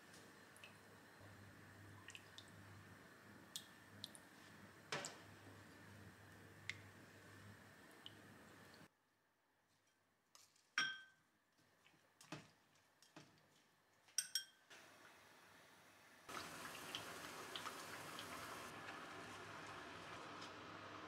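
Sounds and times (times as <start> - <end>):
glassware clinking: 10.8 - 11.2, 14.2 - 14.6.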